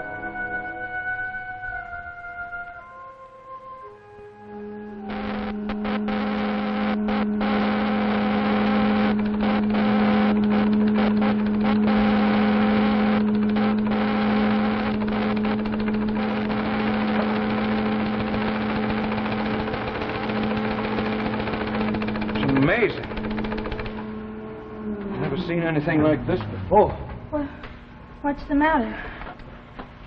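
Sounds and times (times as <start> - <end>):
electrical hum: 1.0 - 30.0
buzzing hiss: 5.0 - 24.0.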